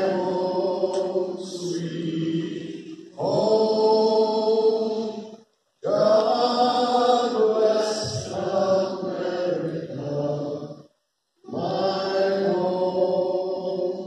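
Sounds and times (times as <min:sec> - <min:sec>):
man singing through microphone: 0:00.0 - 0:10.6.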